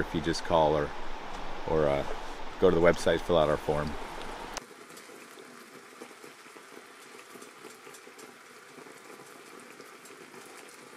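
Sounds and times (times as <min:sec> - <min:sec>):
sauce bubbling in a pan: 0:04.0 - 0:10.9.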